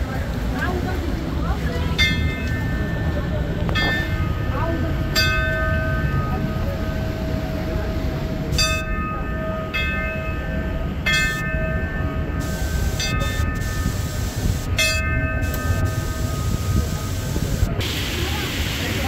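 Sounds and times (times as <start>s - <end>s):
steady low rumble: 0.0s - 19.0s
metal bell ringing: 8.6s - 14.1s, 14.8s - 17.2s.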